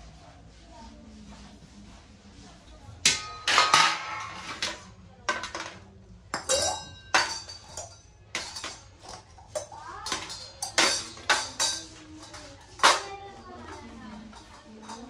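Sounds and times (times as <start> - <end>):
metal utensils clinking: 3.0 - 15.0.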